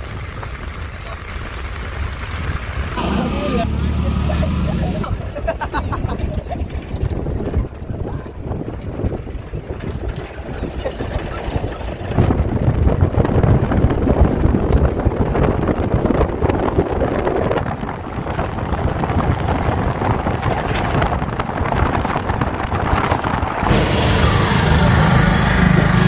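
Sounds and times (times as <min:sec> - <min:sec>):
vehicle noise: 0:00.0 - 0:26.0
wind buffeting microphone: 0:00.0 - 0:26.0.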